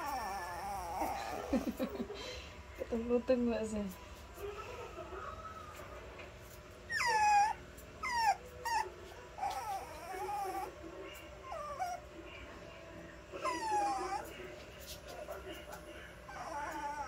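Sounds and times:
puppy whimpering: 0:00.0 - 0:01.8, 0:06.9 - 0:10.8, 0:11.4 - 0:12.1, 0:13.4 - 0:14.4, 0:15.8 - 0:17.0.

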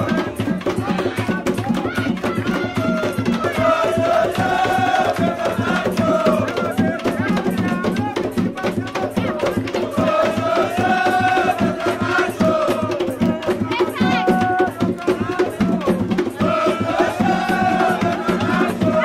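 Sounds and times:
hand drums playing fast beat: 0:00.0 - 0:19.0
voices singing held notes: 0:00.0 - 0:19.0.

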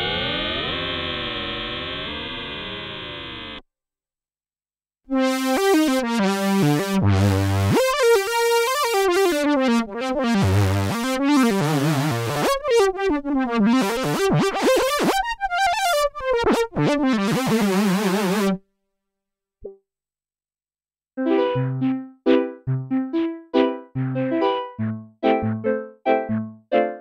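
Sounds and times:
synthesizer lead melody: 0:05.1 - 0:15.0, 0:15.7 - 0:18.6, 0:21.2 - 0:27.0.

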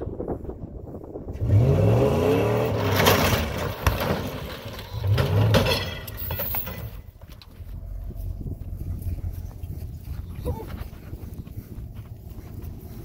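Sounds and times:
heavy vehicle engine revving: 0:01.3 - 0:06.3
metal crunching: 0:01.4 - 0:08.8.

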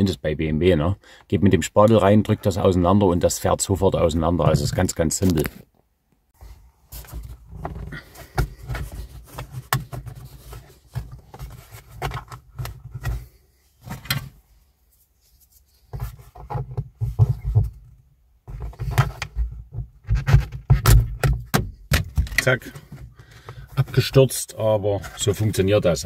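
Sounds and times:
hands rubbing on a smartphone: 0:14.7 - 0:16.5.

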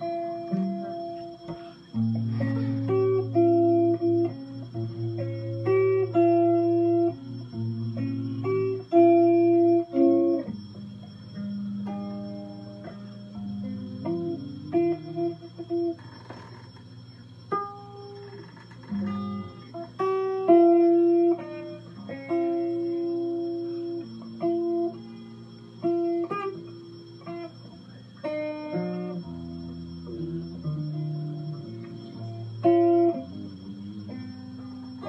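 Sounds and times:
electric guitar slow melody: 0:00.0 - 0:35.0.

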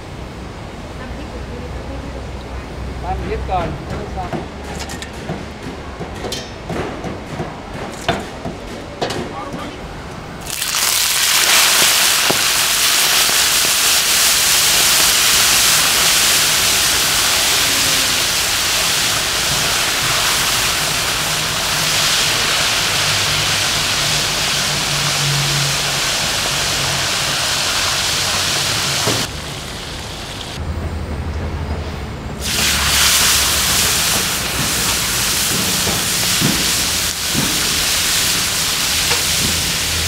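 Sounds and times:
deep-frying in hot oil sizzling: 0:10.4 - 0:30.6, 0:32.4 - 0:40.0.

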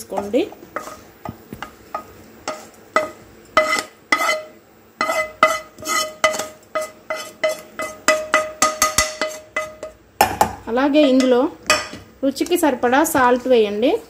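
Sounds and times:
spatula scraping a pan: 0:00.0 - 0:10.0, 0:10.9 - 0:12.1.

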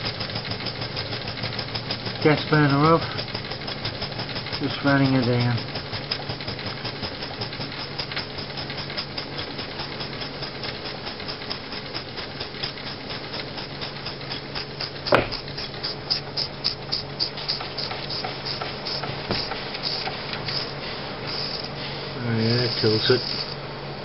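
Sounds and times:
toy steam engine ticking clatter: 0:00.0 - 0:23.7
sharp knock: 0:15.1 - 0:15.5.

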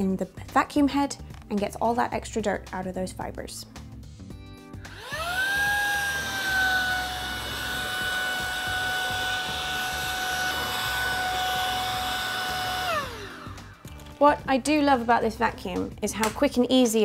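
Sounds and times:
stick vacuum whining: 0:04.9 - 0:14.4
vacuum brush bar turning: 0:04.9 - 0:14.4.

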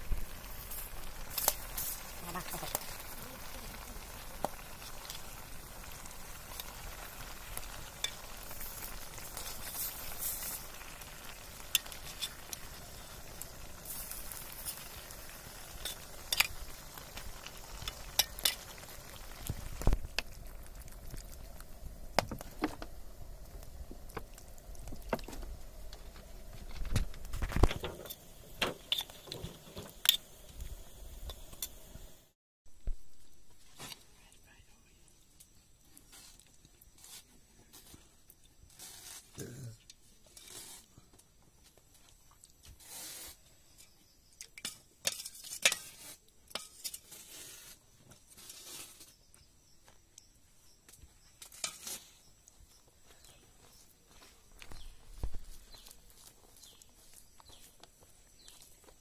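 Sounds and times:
curry bubbling and sizzling: 0:00.0 - 0:33.6, 0:35.2 - 0:59.0.

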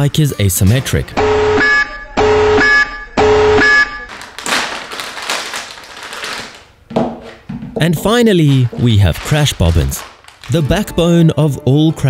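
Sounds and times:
alarm buzzer: 0:01.2 - 0:04.1
plastic packaging rustling: 0:04.1 - 0:11.1.

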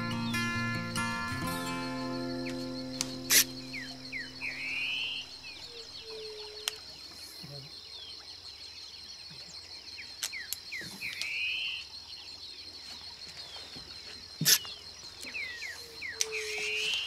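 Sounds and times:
bird buzzy rising call: 0:00.0 - 0:06.5
birds chirping: 0:00.0 - 0:17.0
insect drone: 0:00.0 - 0:17.0
sharp click: 0:02.4 - 0:03.9.

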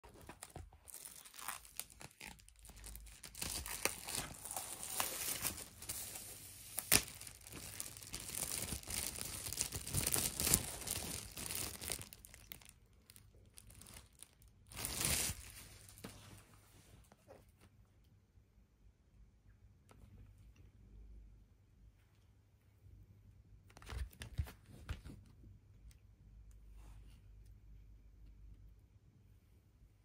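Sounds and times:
plastic wrap crackling: 0:00.0 - 0:16.2.

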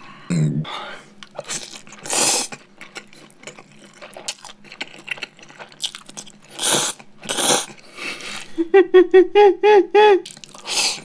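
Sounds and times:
noodles slurped: 0:01.2 - 0:08.5
soft wet chewing: 0:01.2 - 0:08.5, 0:10.2 - 0:11.0.

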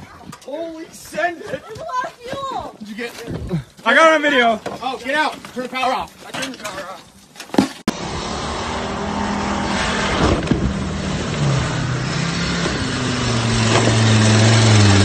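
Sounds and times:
rushing noise: 0:07.9 - 0:15.0
vehicle engine humming: 0:07.9 - 0:15.0.

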